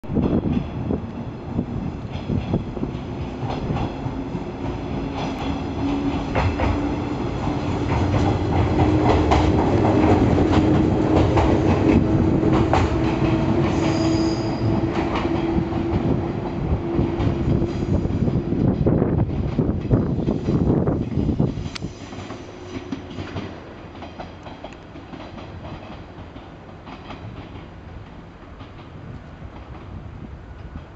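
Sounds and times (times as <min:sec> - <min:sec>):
wheel clacks on rail joints: 0:00.1 - 0:30.9
high wheel squeal: 0:13.6 - 0:14.9.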